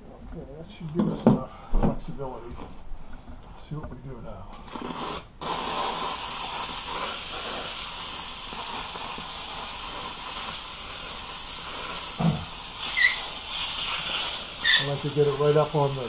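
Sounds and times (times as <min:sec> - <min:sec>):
steamer wand hissing: 0:04.8 - 0:16.0.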